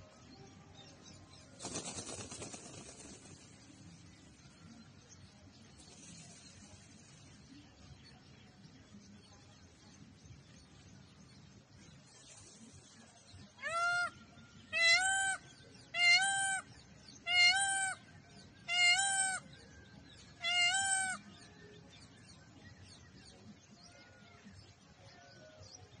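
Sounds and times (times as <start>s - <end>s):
peacock calling: 13.6s - 19.5s, 20.2s - 21.3s.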